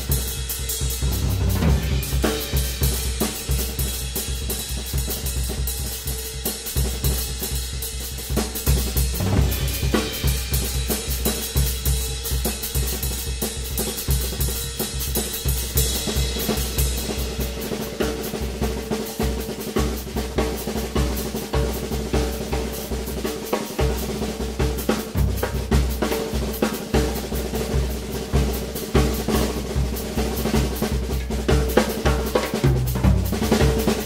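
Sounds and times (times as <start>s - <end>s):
hi-hat and cymbals: 0.0s - 20.0s
bass drum pulsing: 1.0s - 3.1s.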